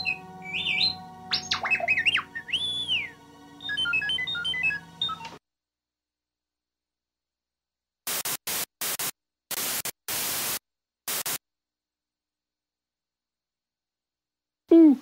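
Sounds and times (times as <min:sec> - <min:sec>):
white-noise static bursts: 0:08.1 - 0:11.4.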